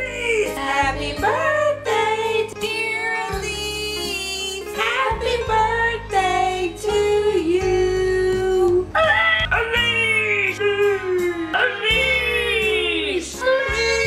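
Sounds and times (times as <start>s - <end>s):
women singing: 0.0s - 9.0s.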